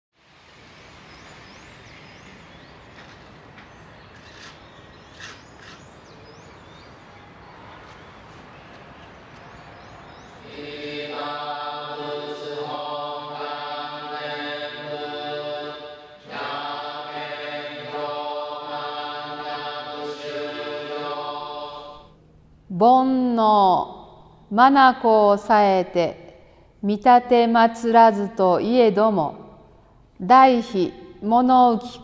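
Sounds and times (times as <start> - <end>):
background hiss: 0.2 - 28.7
birds chirping: 0.7 - 11.2.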